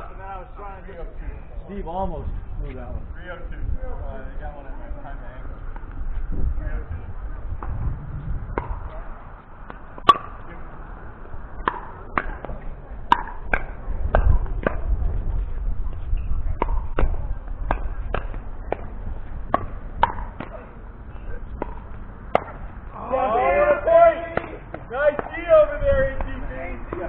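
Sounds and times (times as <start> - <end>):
low steady rumble: 0.0 - 27.0
ball bouncing on hard court: 11.6 - 14.8, 16.6 - 18.9, 19.5 - 20.6.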